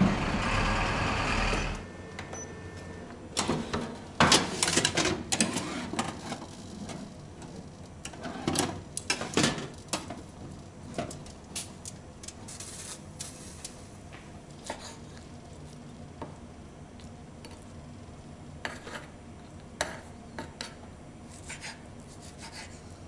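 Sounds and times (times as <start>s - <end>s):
steady noisy rumble: 0.0s - 2.2s.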